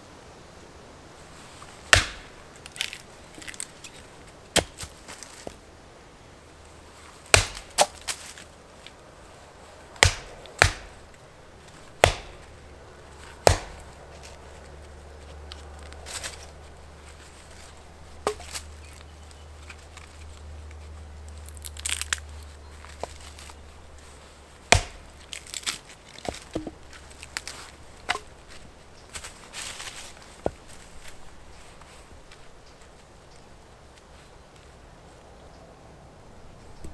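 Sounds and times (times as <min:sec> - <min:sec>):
split wood being handled: 0:01.4 - 0:05.7, 0:06.6 - 0:34.8
hatchet striking wood: 0:01.9 - 0:03.0, 0:07.3 - 0:08.0, 0:10.0 - 0:11.0, 0:12.0 - 0:12.5, 0:13.4 - 0:13.9, 0:24.7 - 0:26.8, 0:28.1 - 0:28.3.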